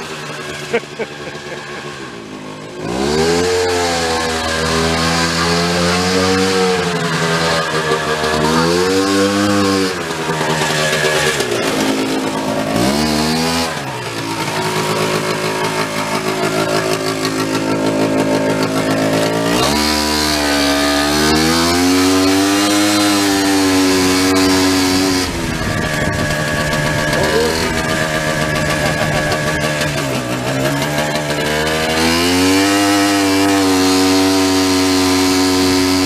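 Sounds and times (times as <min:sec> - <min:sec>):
engine revving while driving: 0:00.0 - 0:36.0.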